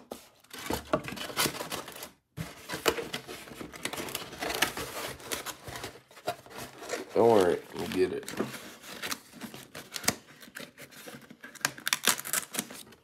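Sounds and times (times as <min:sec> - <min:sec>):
packaging rustling: 0:00.0 - 0:13.0.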